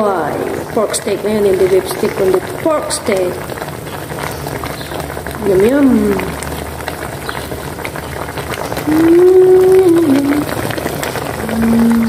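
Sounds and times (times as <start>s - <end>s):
sauce bubbling in a pan: 0.0s - 12.0s
person humming: 8.9s - 10.6s, 11.4s - 12.0s.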